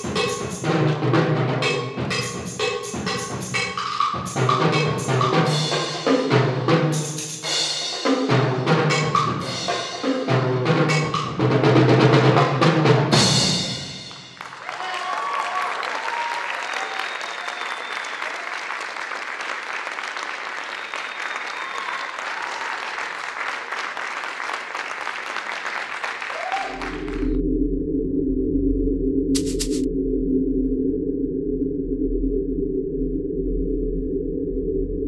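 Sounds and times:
toms and bass drum: 0:00.0 - 0:14.4, 0:29.4 - 0:29.9
audience applauding: 0:14.0 - 0:27.4
audience whooping: 0:14.3 - 0:27.4
electronic drone: 0:26.8 - 0:35.0.

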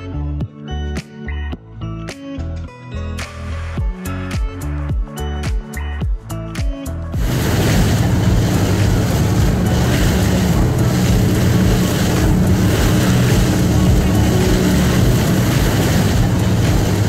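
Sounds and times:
boat engine humming: 0:07.2 - 0:17.0
rushing wind and water: 0:07.2 - 0:17.0.

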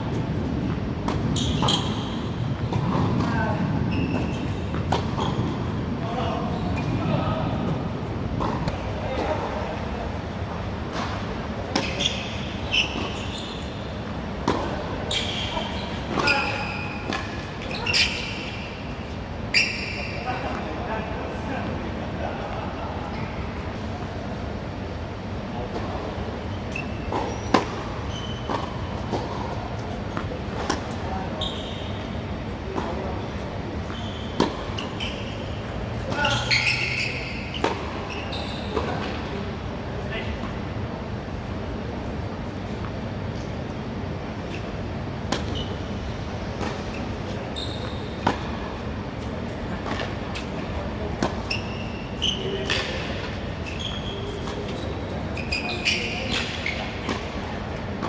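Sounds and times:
shoes squeaking on court: 0:00.0 - 0:09.8, 0:10.5 - 0:20.7, 0:25.6 - 0:39.4, 0:44.4 - 0:58.0
low hum of hall: 0:00.0 - 0:58.0
racket hitting tennis ball: 0:04.1 - 0:05.5, 0:14.1 - 0:14.9, 0:16.0 - 0:17.8, 0:27.1 - 0:31.0, 0:34.4 - 0:34.9, 0:45.3 - 0:45.6, 0:48.1 - 0:48.6, 0:51.1 - 0:51.5, 0:52.6 - 0:53.4, 0:56.3 - 0:57.4.

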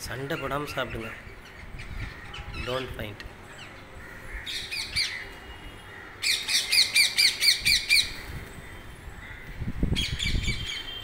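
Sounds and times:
parakeets screeching: 0:00.1 - 0:03.0.

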